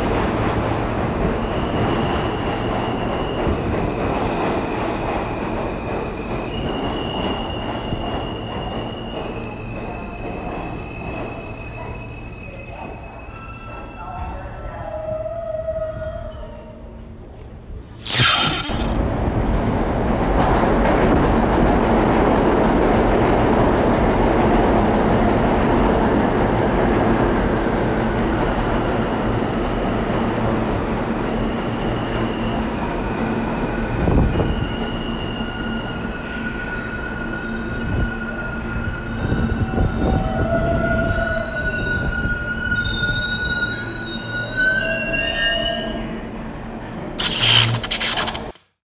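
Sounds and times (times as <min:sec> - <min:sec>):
subway train wheels rumbling: 0:00.0 - 0:17.8, 0:19.0 - 0:47.2
high wheel squealing: 0:17.9 - 0:19.0, 0:47.2 - 0:48.6.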